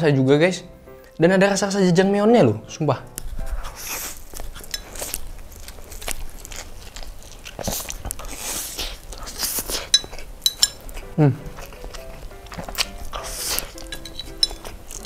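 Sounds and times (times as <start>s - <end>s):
chewing: 3.1s - 15.0s
lip smacks and mouth clicks: 3.1s - 15.0s
noodles slurped: 3.7s - 10.0s, 11.4s - 15.0s
person humming: 11.0s - 11.7s.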